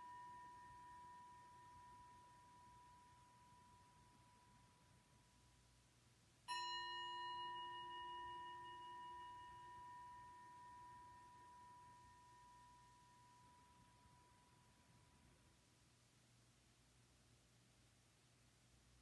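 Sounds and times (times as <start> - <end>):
bell-like tone ringing: 0.0 - 5.0, 6.5 - 15.2.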